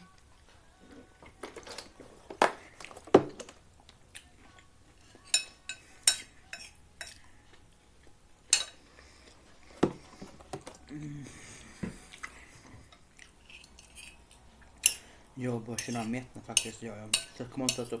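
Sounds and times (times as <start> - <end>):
metal fork clinking on plate: 5.2 - 7.2.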